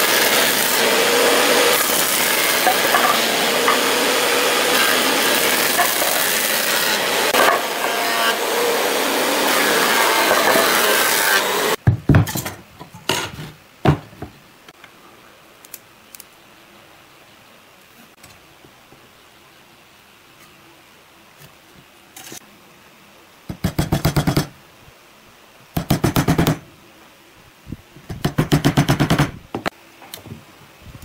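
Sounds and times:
thickness planer planing wood: 0.0s - 11.8s.

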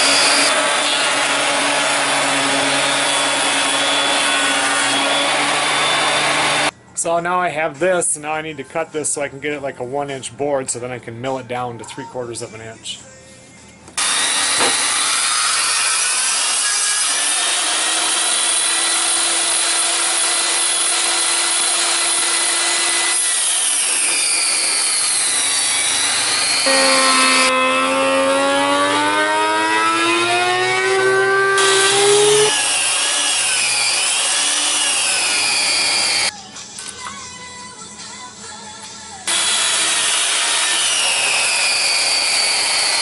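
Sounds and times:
table saw cutting wood: 0.0s - 6.7s, 14.0s - 36.3s, 39.3s - 43.0s.

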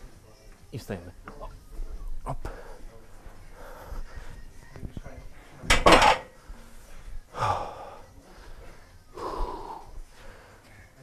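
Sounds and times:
heavy breathing: 2.4s - 4.6s, 6.3s - 11.0s.

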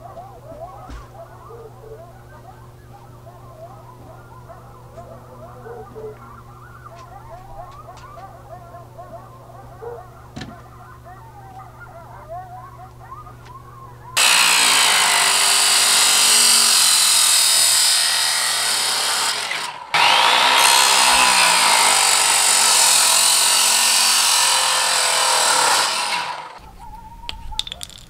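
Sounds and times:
chop saw grinding through metal: 14.2s - 26.6s.

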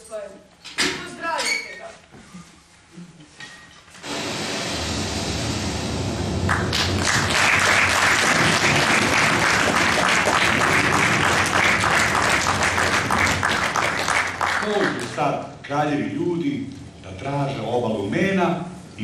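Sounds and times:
audience applauding: 6.4s - 15.2s.

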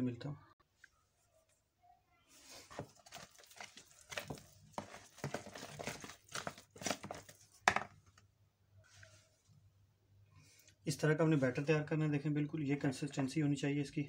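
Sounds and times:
spoon stirring thick batter: 2.3s - 7.7s.

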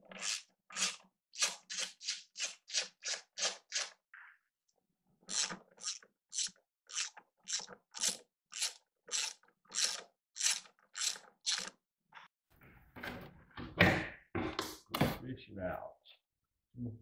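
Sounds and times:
knock: 13.1s - 15.2s.

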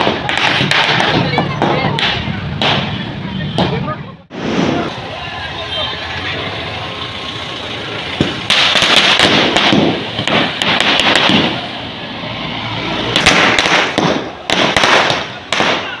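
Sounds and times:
sharp cracks and pops: 8.2s - 11.6s.

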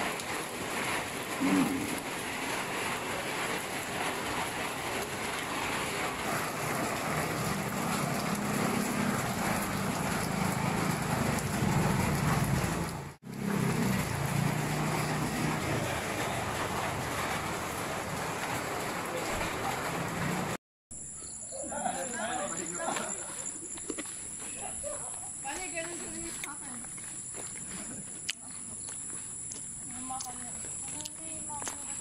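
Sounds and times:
light rain on pavement: 0.0s - 20.6s, 21.9s - 32.0s
low vehicle engine hum: 6.1s - 18.3s.

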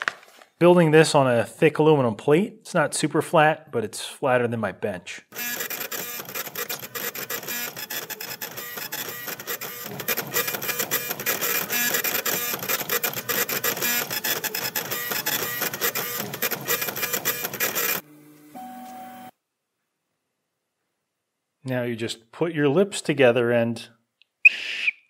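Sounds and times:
stepper motors whining: 5.4s - 18.0s.

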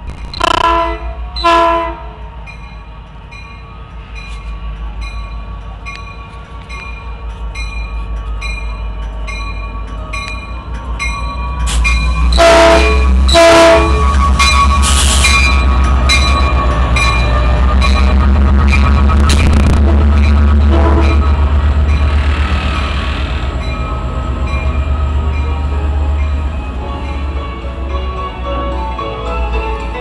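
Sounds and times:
diesel locomotive engine rumbling: 0.0s - 30.0s
train horn blasts: 0.4s - 2.2s, 12.2s - 15.3s, 19.5s - 21.4s
locomotive bell ringing: 2.3s - 30.0s.

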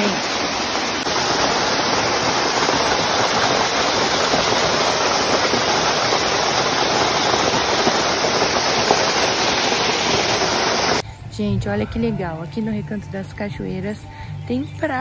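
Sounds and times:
waterfall rushing: 0.0s - 11.0s.

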